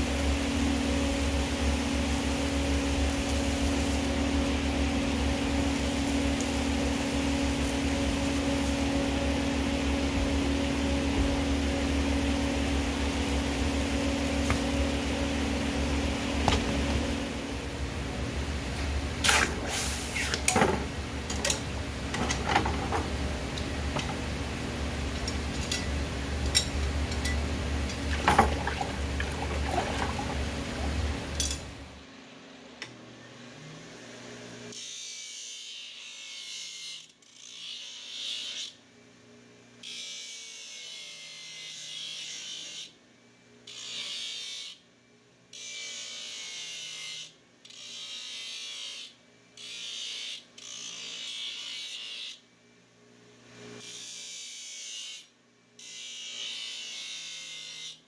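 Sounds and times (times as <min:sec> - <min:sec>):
loud hiss: 0:19.2 - 0:20.4.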